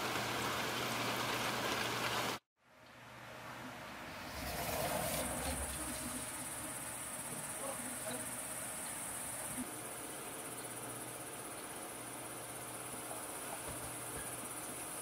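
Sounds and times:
insects chirping: 0:04.3 - 0:15.0.

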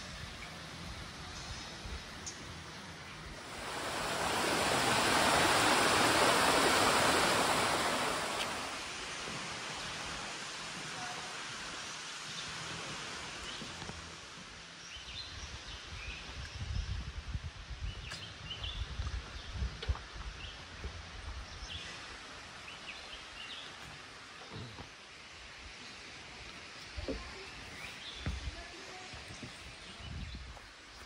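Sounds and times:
rushing water: 0:03.2 - 0:14.8.

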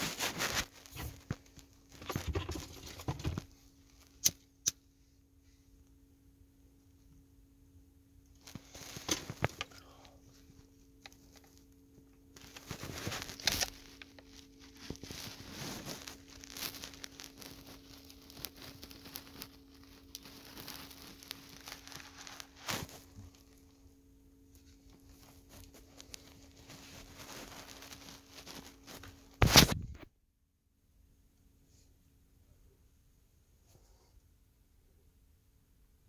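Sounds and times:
rustling and handling noises: 0:00.0 - 0:05.7, 0:08.3 - 0:30.1.

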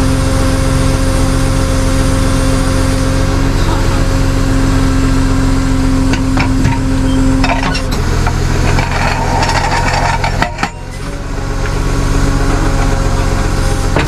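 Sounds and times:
engine and hydraulic hum: 0:00.0 - 0:14.0
metal clicks and clunks: 0:06.1 - 0:11.0
held tone: 0:06.3 - 0:07.9.

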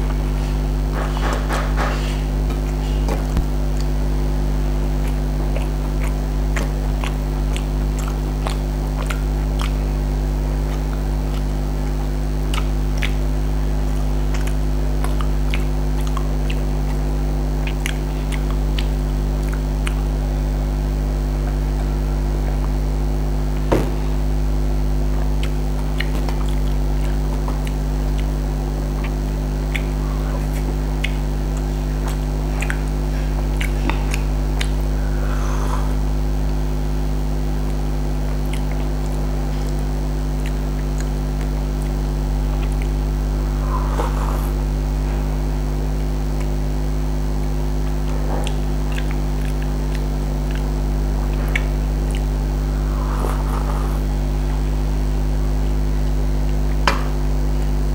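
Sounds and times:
chewing and sipping: 0:00.0 - 0:57.9
steady low hum: 0:00.0 - 0:57.9
sharp knock: 0:23.7 - 0:24.1.

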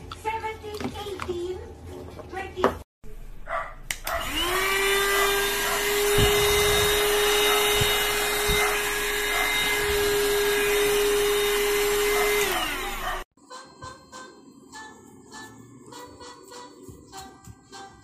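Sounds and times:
handheld vacuum motor whine: 0:04.0 - 0:13.3.

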